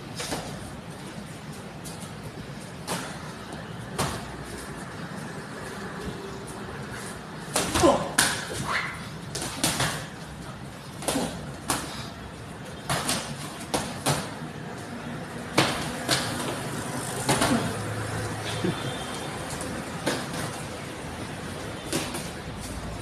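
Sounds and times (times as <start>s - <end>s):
boxing gloves smacking: 9.3s - 10.2s, 12.8s - 14.4s, 15.5s - 16.6s, 21.9s - 22.4s.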